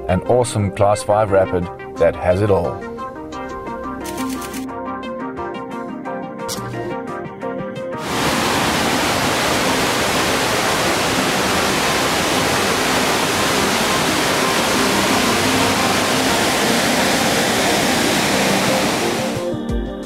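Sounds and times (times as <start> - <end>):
whitewater rapid roaring: 8.0 - 19.5.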